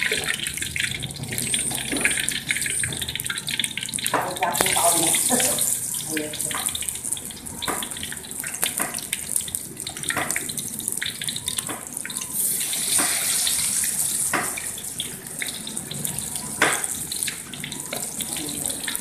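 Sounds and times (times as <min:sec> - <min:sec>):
chicken deep-frying in oil: 0:00.0 - 0:19.0.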